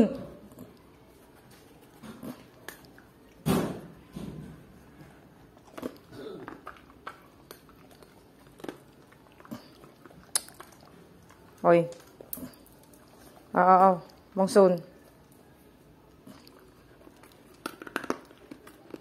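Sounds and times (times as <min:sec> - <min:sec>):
animals chewing food: 0:00.3 - 0:19.0.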